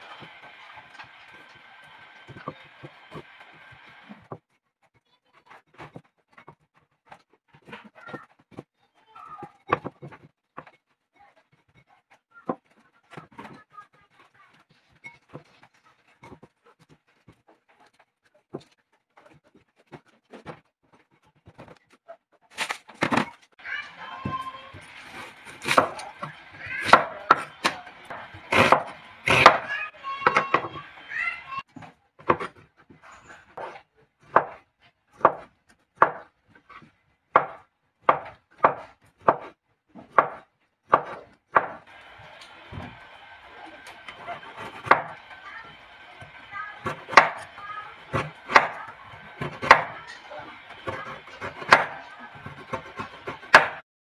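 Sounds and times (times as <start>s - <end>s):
cleaver chopping on wooden board: 25.5s - 29.7s, 37.4s - 39.5s, 40.1s - 41.8s, 44.2s - 45.2s, 46.3s - 50.1s, 50.8s - 53.8s.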